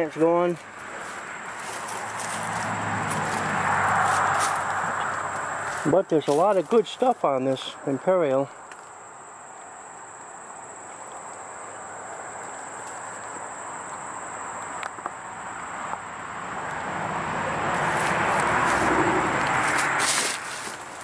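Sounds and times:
vehicle approaching: 0.0 - 21.0.

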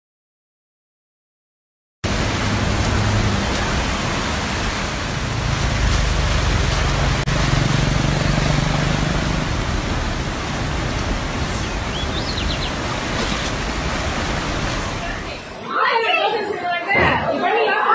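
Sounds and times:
floodwater rushing: 2.0 - 17.9
low rumble: 2.1 - 12.2.

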